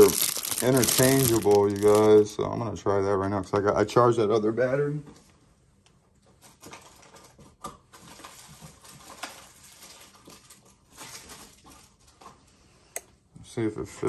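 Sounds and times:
plastic packaging crinkling: 0:00.0 - 0:02.2, 0:07.9 - 0:12.2.

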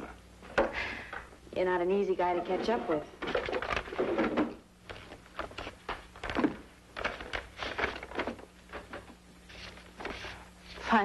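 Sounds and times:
papers and desk items handled: 0:02.3 - 0:11.0.

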